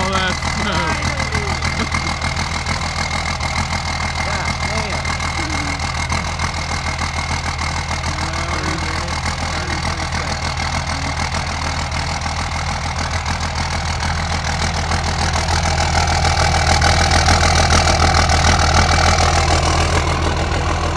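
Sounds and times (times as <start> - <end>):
diesel engine idling: 0.0 - 20.9.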